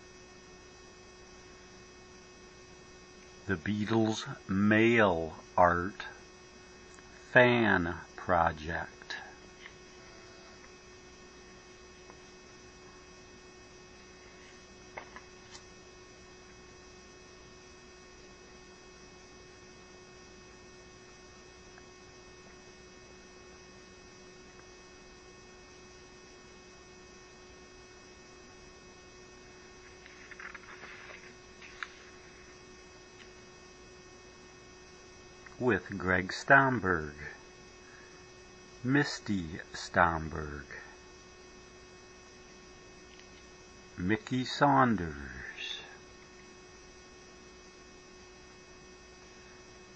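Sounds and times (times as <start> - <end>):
electrical hum: 0.0 - 49.9
soft rustle: 29.8 - 32.6.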